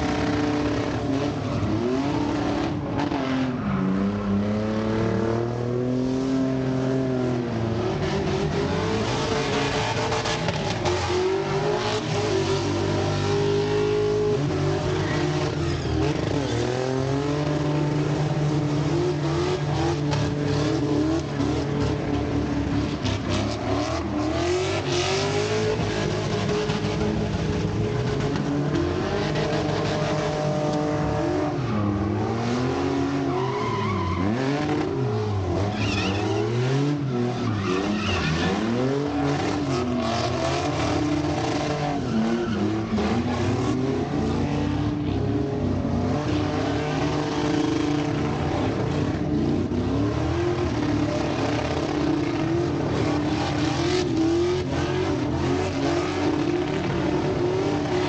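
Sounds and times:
car engines revving: 0.0 - 58.0
tyres squealing on pavement: 33.0 - 39.4, 41.0 - 43.6.

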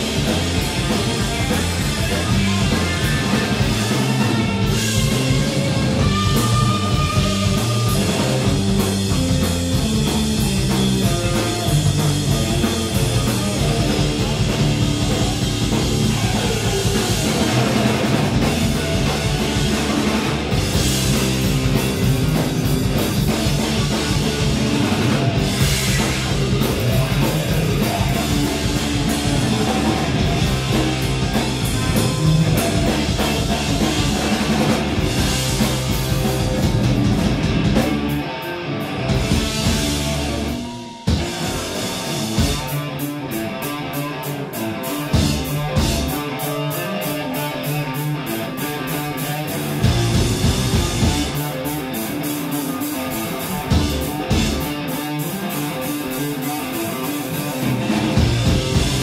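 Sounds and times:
drum kit: 0.0 - 59.0
electric bass: 0.0 - 59.0
electric guitar: 0.0 - 59.0.

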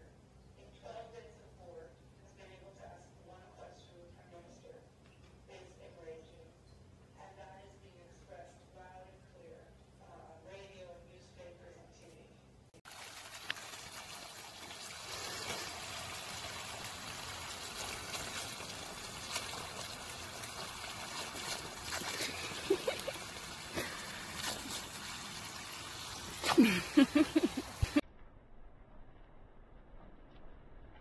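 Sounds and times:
hose water spraying on grass: 12.9 - 28.0.

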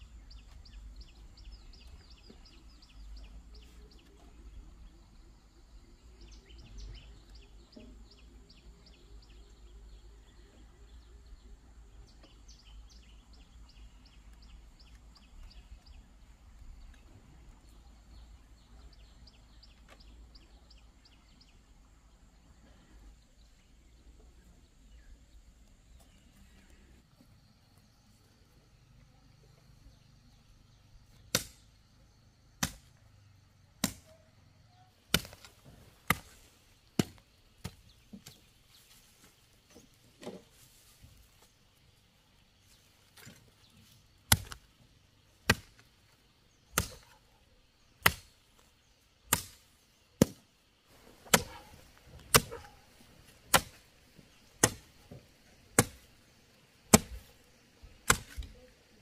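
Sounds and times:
chopping strikes on wood: 31.2 - 31.6, 32.6 - 32.9, 33.8 - 34.1, 35.1 - 36.4, 37.0 - 38.4, 44.3 - 44.7, 45.4 - 45.9, 46.7 - 47.2, 48.0 - 48.3, 49.3 - 49.6, 50.2 - 50.5, 51.2 - 52.8, 53.5 - 53.8, 54.5 - 55.2, 55.8 - 56.1, 56.9 - 57.3, 58.0 - 58.6.

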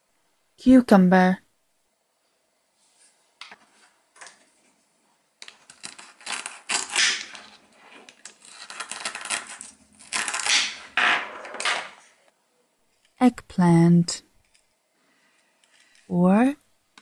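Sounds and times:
velcro ripping: 5.7 - 7.6, 8.2 - 10.9.

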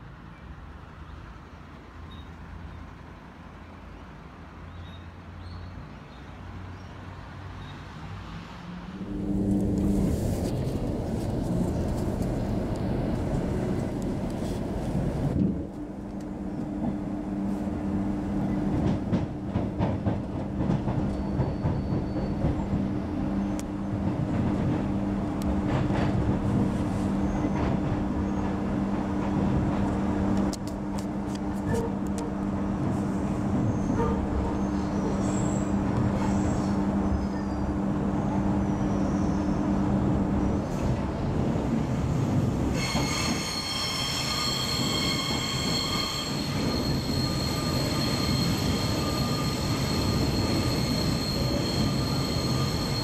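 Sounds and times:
electric train running noise: 42.3 - 53.0.

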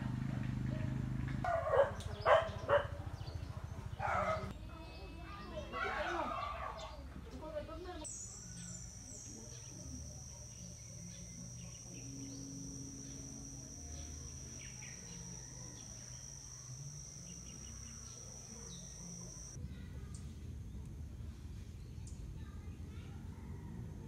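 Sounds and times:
insects trilling: 8.0 - 19.6
bird chirps: 8.1 - 19.6.

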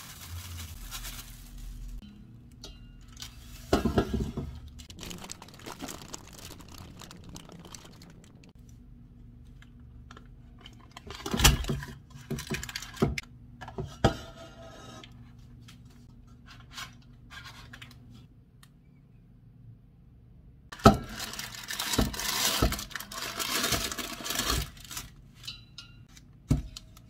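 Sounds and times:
paper liner crinkling: 4.7 - 8.6.

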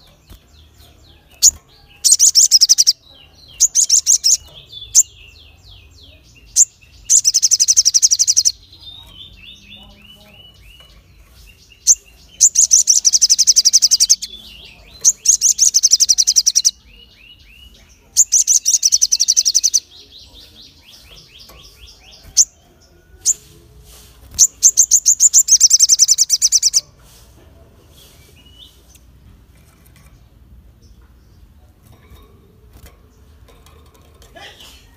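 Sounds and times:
songbird trilling high chirps: 0.0 - 23.5, 24.3 - 26.9.

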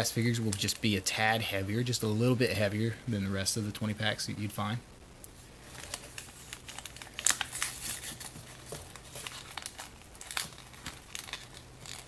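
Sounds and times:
foil packet crinkling: 5.6 - 12.0.

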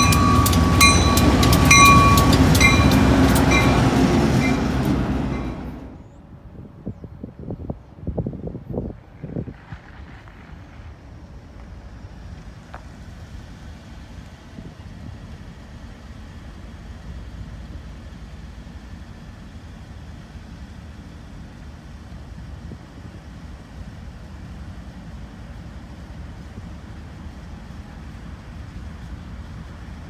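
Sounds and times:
diesel locomotive engine rumble: 0.0 - 30.0.

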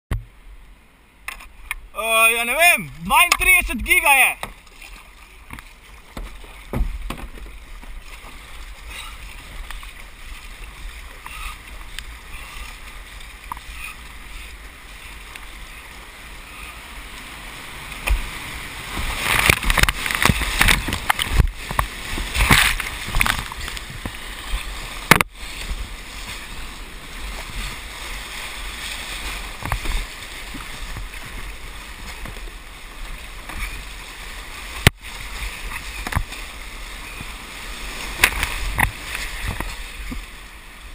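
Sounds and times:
paddle strokes splashing: 0.1 - 40.9
whitewater rushing: 1.9 - 5.0.

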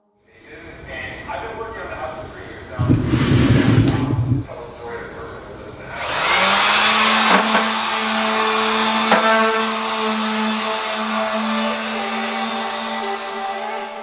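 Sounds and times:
electric sander humming: 5.9 - 14.0.

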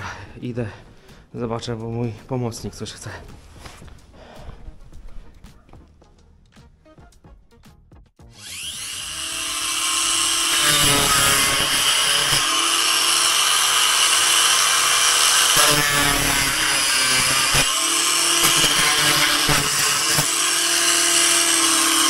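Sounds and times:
electric power tool running: 8.2 - 22.0.

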